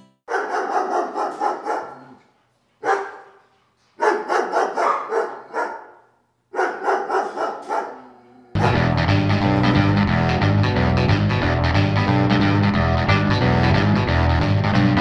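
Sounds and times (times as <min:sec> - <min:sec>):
dog barking: 0:00.3 - 0:02.2, 0:02.8 - 0:08.9.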